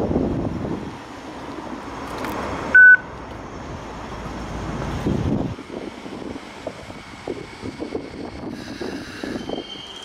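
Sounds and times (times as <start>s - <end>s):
outdoor background noise: 0.0s - 10.0s
short electronic beep: 2.8s - 3.0s.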